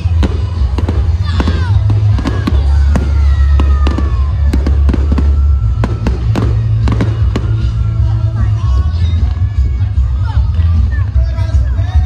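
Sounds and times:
fireworks bangs and crackles: 0.0s - 10.9s.

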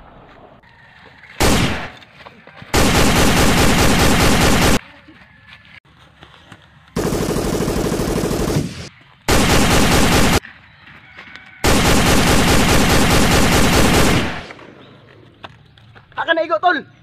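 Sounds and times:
machine-gun automatic fire: 1.4s - 1.9s, 2.8s - 4.8s, 7.0s - 10.4s, 11.6s - 14.6s.

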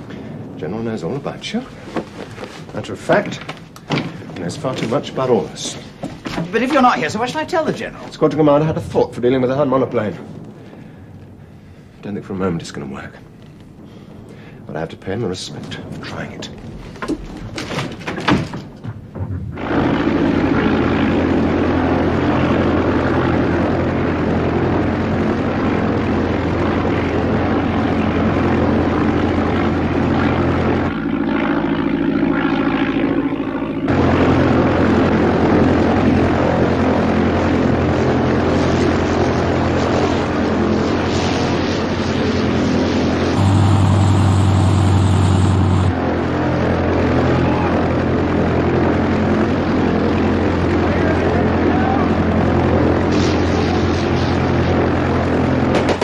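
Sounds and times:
propeller aircraft engine running: 18.8s - 56.0s.

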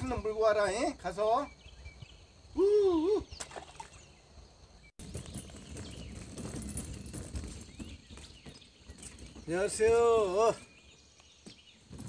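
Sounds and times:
birds chirping faintly: 0.0s - 12.0s
cart wheels clattering over planks: 5.0s - 12.0s.

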